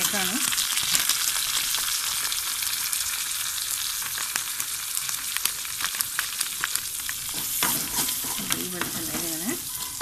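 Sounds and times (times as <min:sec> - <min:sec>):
small crackles and pops: 0:00.0 - 0:03.0, 0:03.7 - 0:07.4
oil sizzling in a pan: 0:00.0 - 0:10.0.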